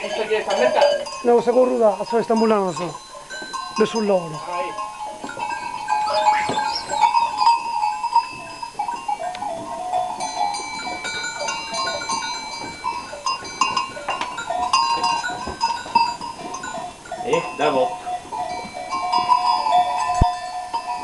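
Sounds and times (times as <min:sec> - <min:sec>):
goat bells clinking: 0:00.0 - 0:21.0.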